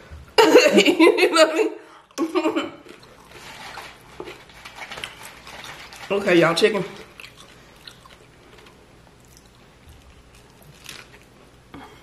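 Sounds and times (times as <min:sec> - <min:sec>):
taco shell crackling: 0:02.9 - 0:11.6.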